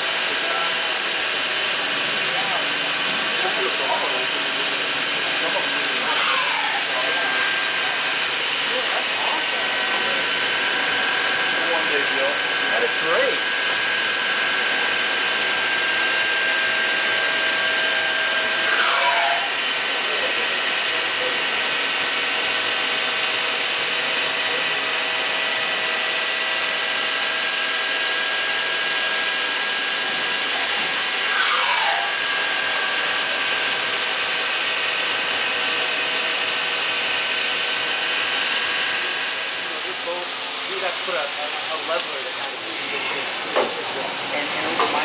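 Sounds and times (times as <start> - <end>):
machine whine: 0.0 - 45.0
machining center whirring hiss: 39.0 - 45.0.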